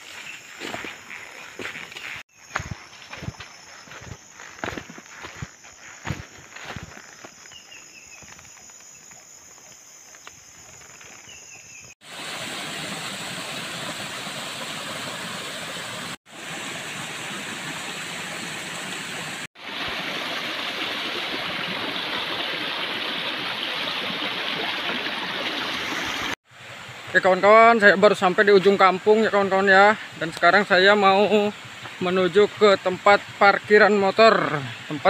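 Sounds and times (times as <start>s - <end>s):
stream cascading over boulders: 12.0s - 28.2s.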